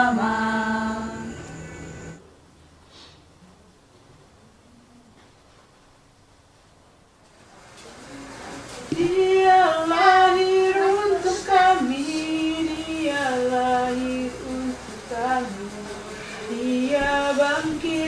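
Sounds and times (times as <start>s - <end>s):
high voice singing slow melody: 0.0s - 1.8s, 8.9s - 18.0s.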